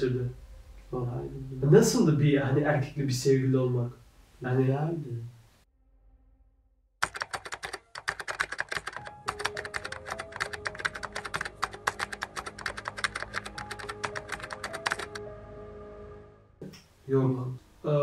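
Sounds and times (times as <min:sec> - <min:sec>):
faint background music: 0:00.0 - 0:05.3, 0:08.8 - 0:16.5, 0:17.1 - 0:18.0
keyboard key clicks: 0:07.0 - 0:15.1.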